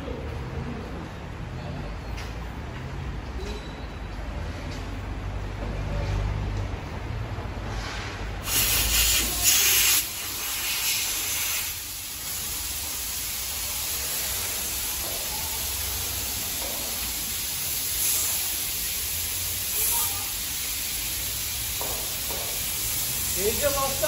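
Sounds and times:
gas hissing from a leak: 7.8 - 24.0.

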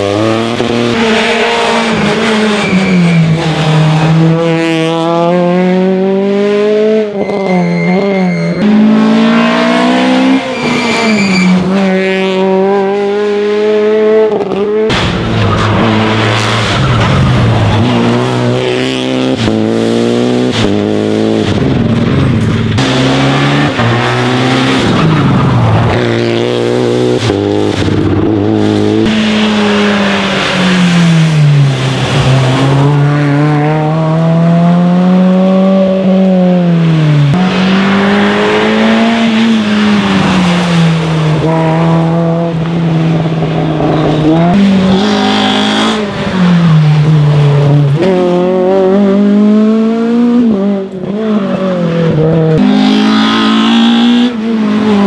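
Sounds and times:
rally car engine revving: 0.0 - 55.0
tyre squeal: 2.2 - 3.6, 7.1 - 9.0, 10.4 - 11.8.

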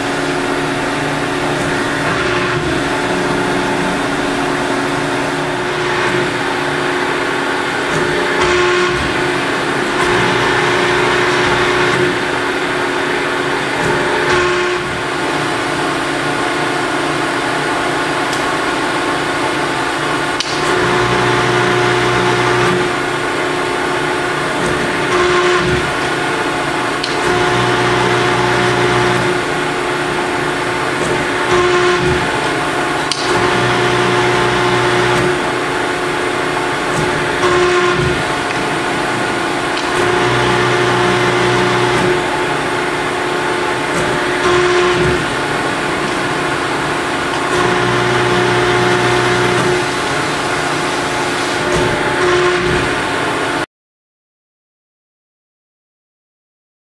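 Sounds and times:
hydraulic pump humming: 0.0 - 53.7.

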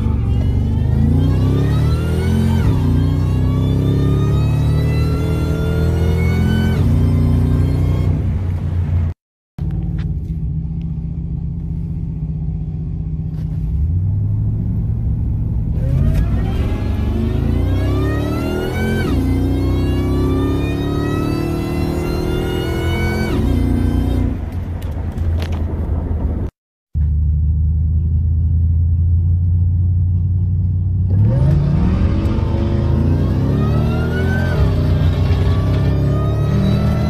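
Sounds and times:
truck engine revving through upshifts: 0.0 - 8.6, 13.8 - 24.5, 31.1 - 37.0.

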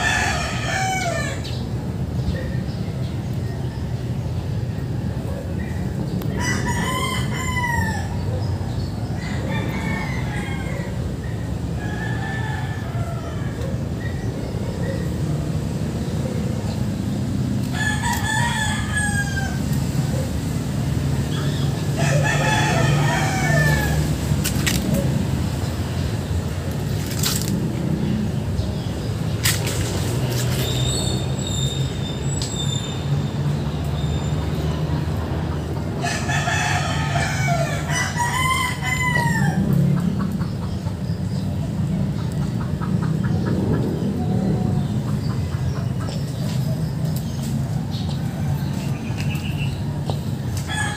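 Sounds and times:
rooster crowing: 0.0 - 1.5, 6.4 - 8.2, 9.2 - 11.1, 11.8 - 13.8, 17.7 - 19.7, 22.0 - 24.2, 36.0 - 39.8, 50.7 - 50.9.

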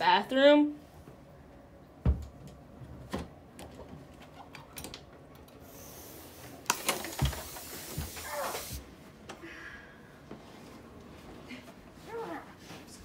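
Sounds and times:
knocks and thump against door: 2.0 - 2.3
aerosol spray can hissing: 5.7 - 8.8.

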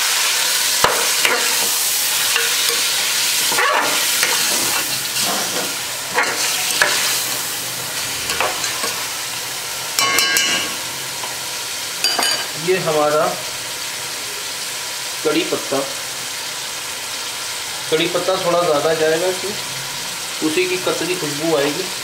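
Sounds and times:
chicken sizzling in a pot: 0.0 - 22.0
spatula scraping pot: 0.8 - 7.4.

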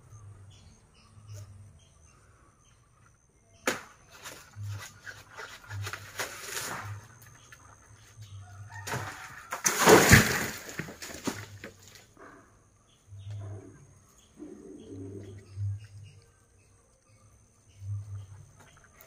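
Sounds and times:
sharp crack: 3.6 - 4.2, 8.9 - 11.6
palm fronds rustling: 3.6 - 12.1
rustling crash with thump: 8.8 - 11.9.

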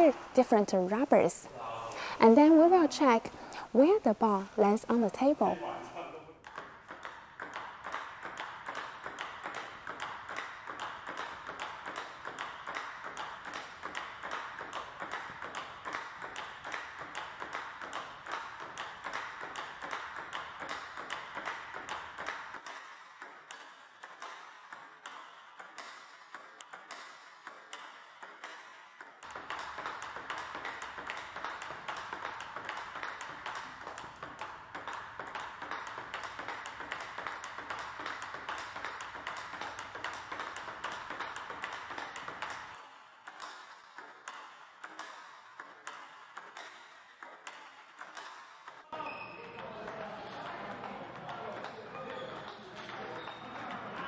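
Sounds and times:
table tennis balls ticking: 6.4 - 54.0.

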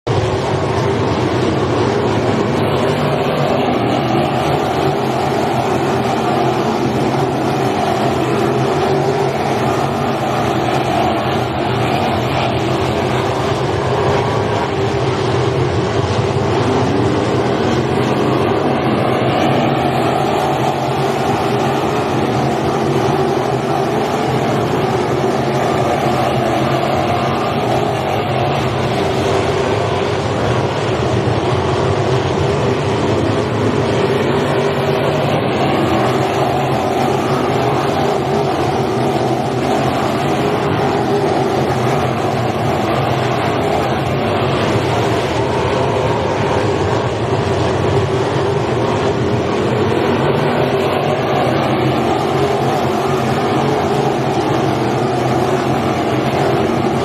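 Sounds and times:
sprint car engines racing: 0.1 - 57.0.

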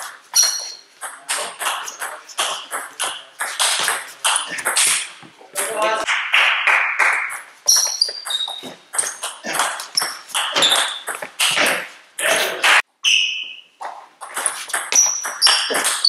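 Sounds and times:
shoes squeaking on floor: 0.0 - 5.4, 7.6 - 12.0, 13.0 - 16.0.

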